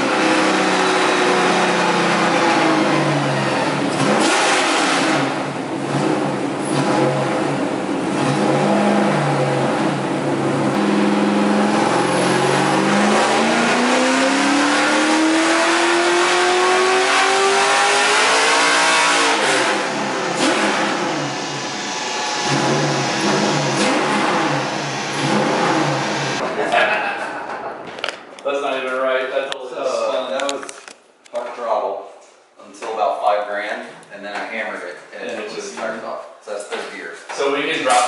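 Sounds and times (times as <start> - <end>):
car engine revving: 0.0 - 26.4.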